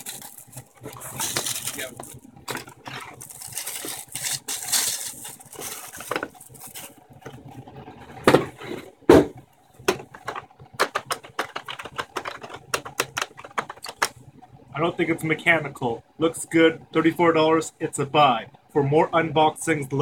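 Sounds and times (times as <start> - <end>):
plastic wrapping crinkling: 0.0 - 7.7
loud thumps: 8.2 - 14.1.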